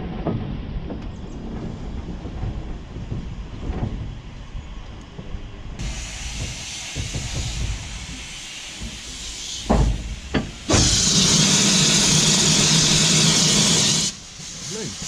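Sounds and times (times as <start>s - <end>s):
steam locomotive hissing: 5.8s - 15.0s.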